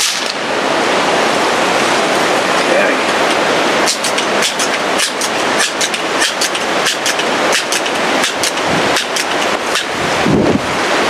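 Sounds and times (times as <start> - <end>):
wind buffeting microphone: 0.5 - 11.0.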